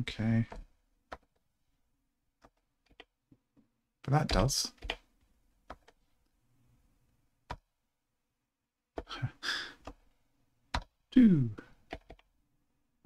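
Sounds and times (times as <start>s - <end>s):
breathy exhale: 9.4s - 9.8s
computer keyboard clicks: 11.9s - 12.3s.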